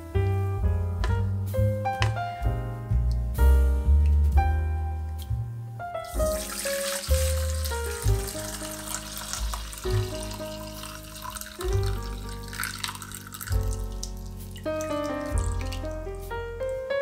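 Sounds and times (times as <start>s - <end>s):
background music: 0.0s - 17.0s
liquid trickling into bowl: 6.2s - 16.0s.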